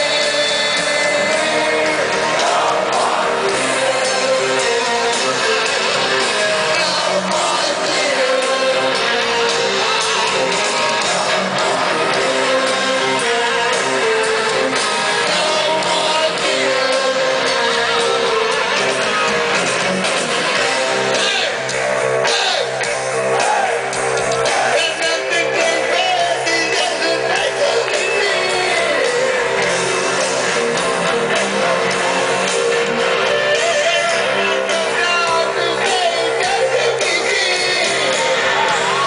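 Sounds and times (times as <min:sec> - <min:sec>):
man singing: 0:00.0 - 0:19.3, 0:24.7 - 0:30.2, 0:33.1 - 0:39.0
distorted electric guitar: 0:00.0 - 0:39.0
drums: 0:00.0 - 0:39.0.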